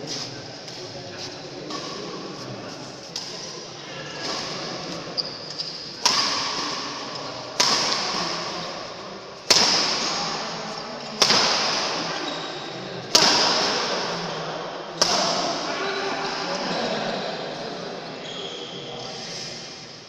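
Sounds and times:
rackets striking shuttlecock: 0:06.0 - 0:08.6, 0:09.4 - 0:10.2, 0:11.2 - 0:12.1, 0:13.1 - 0:14.1.

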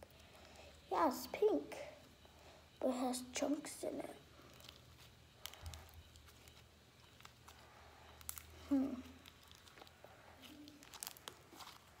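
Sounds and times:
slime squishing by hand: 0:04.4 - 0:12.0.

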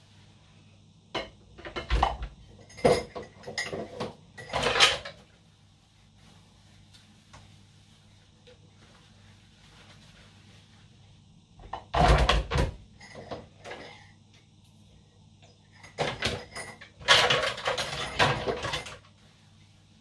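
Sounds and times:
dishes clattering: 0:01.2 - 0:05.2, 0:11.6 - 0:14.2, 0:15.8 - 0:19.1.

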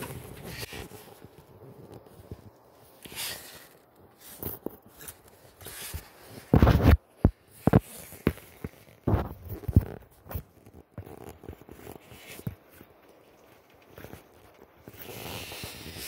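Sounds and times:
phone handling scrapes and thumps: 0:01.9 - 0:12.8.

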